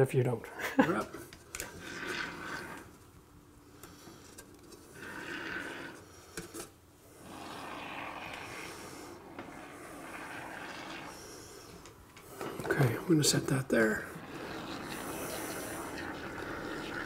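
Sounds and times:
spray foam hissing: 13.8s - 17.0s.

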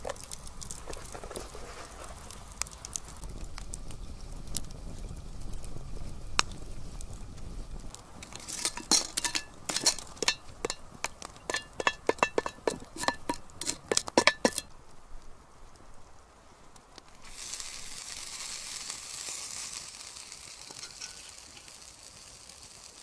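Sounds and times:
campfire crackling: 0.0s - 23.0s
metal utensil clinking on pot: 8.2s - 14.7s, 20.7s - 21.3s.

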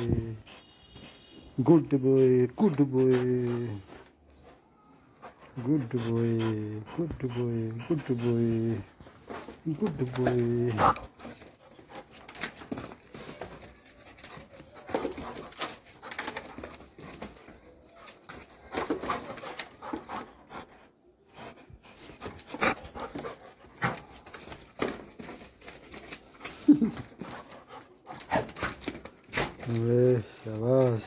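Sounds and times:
dog panting: 0.0s - 1.3s, 5.2s - 31.0s.

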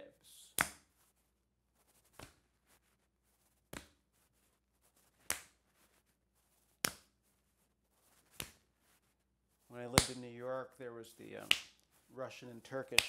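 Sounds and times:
palms slapping body: 0.5s - 1.0s, 2.0s - 2.7s, 3.6s - 4.1s, 5.1s - 5.8s, 6.7s - 7.2s, 8.1s - 8.7s, 9.7s - 10.4s, 11.3s - 11.9s, 12.8s - 13.0s.

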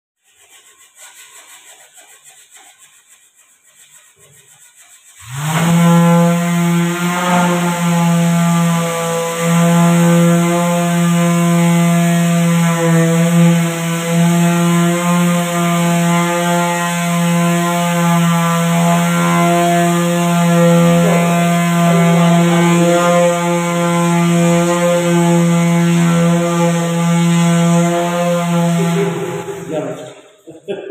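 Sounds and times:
electric sander on wood: 5.2s - 30.2s.

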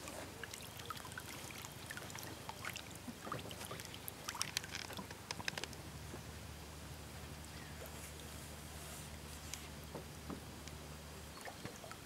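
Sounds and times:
short water plinks: 0.0s - 5.8s
water drips and splashes: 0.0s - 5.8s.

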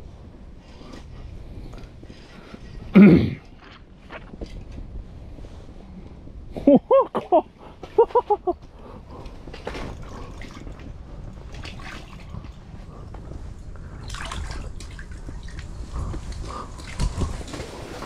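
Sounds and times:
water splashing and dripping: 9.9s - 13.0s, 13.6s - 18.0s.

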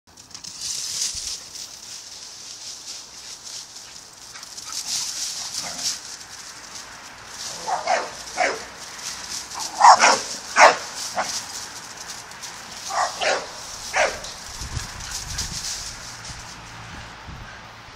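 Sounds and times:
dog barking: 7.6s - 8.7s, 9.6s - 11.3s, 12.9s - 14.3s.

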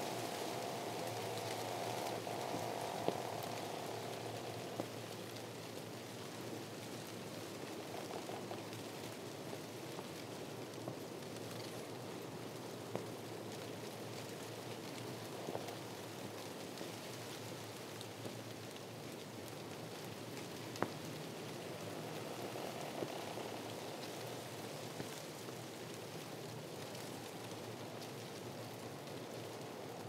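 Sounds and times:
wind rustling palm fronds: 0.0s - 30.0s
faint ticks: 0.1s - 5.5s.

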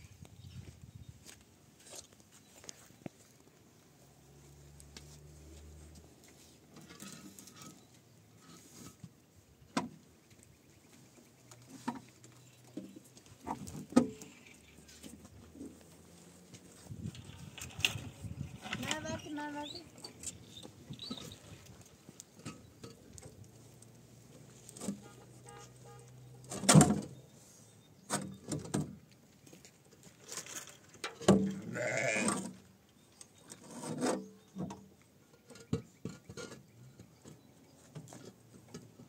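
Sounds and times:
sheep or goat bleating: 31.6s - 32.4s.

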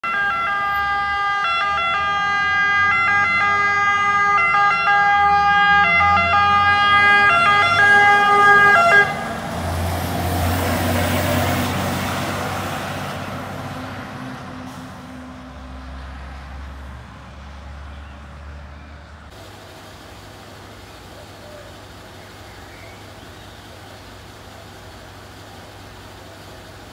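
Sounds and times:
fire engine two-tone siren: 0.0s - 14.0s
truck engine and tyres passing: 0.0s - 26.9s.

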